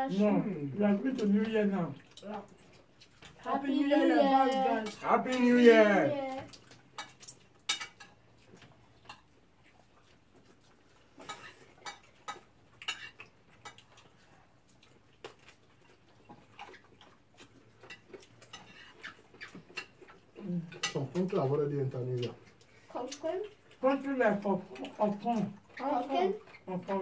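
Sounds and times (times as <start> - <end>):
cutlery and dishes clinking: 4.8 - 5.6, 6.6 - 8.2, 11.1 - 14.0, 17.8 - 21.6.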